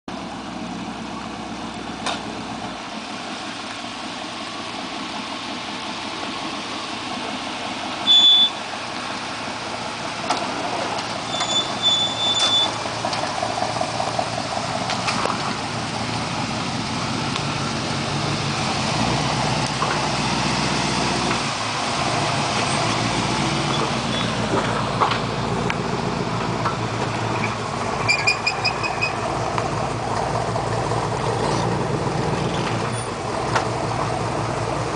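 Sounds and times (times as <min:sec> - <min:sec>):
truck engine running at low speed: 0:00.1 - 0:34.9.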